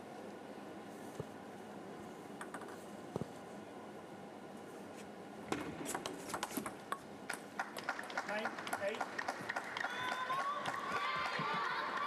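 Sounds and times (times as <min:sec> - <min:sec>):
table tennis ball hits: 0:05.5 - 0:09.6
crowd noise: 0:08.0 - 0:12.0.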